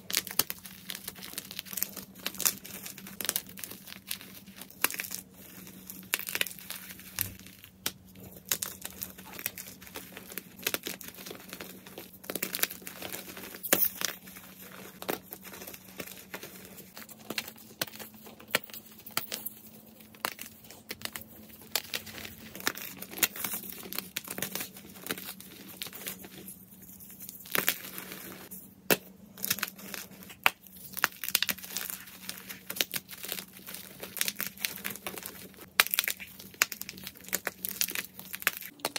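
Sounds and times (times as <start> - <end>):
chalk pieces snapping: 27.4 - 38.9.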